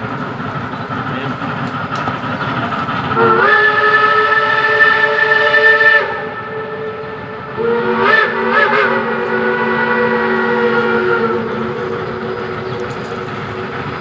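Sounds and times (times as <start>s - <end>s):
steam whistle blasts: 3.1s - 13.6s.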